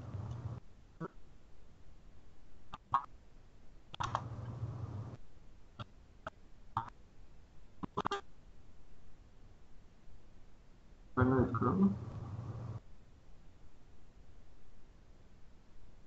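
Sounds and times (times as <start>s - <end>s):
computer keyboard keystrokes: 4.0s - 4.3s.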